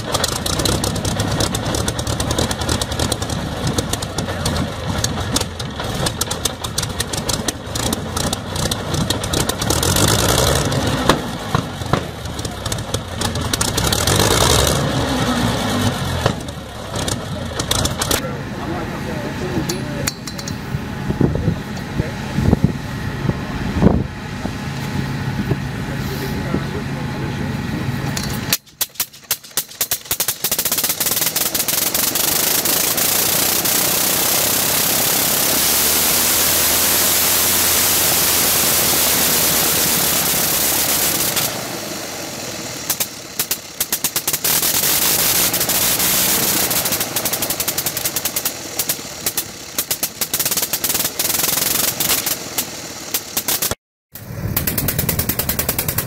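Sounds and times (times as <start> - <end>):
rotary engine running: 0.0 - 56.0
engine starting bangs: 42.8 - 56.0.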